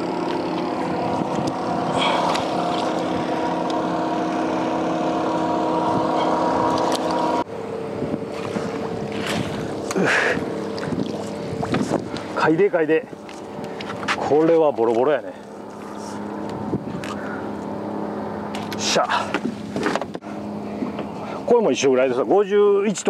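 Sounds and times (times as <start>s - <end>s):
boat motor humming: 0.0s - 23.0s
water splashing: 0.4s - 4.0s, 8.3s - 12.5s.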